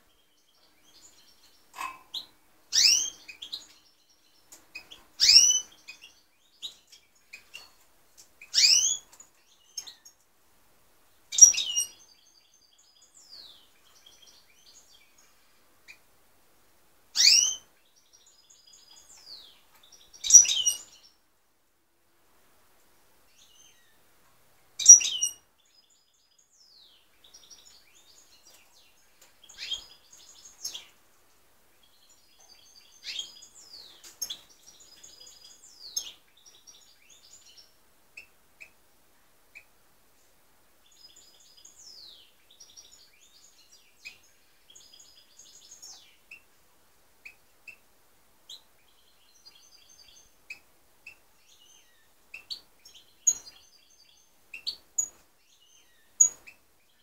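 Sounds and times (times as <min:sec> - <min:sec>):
finches singing and calling: 0:00.1 - 0:07.7, 0:08.4 - 0:10.2, 0:11.3 - 0:16.0, 0:17.2 - 0:21.1, 0:24.8 - 0:31.0, 0:31.8 - 0:38.8, 0:48.5 - 0:57.0.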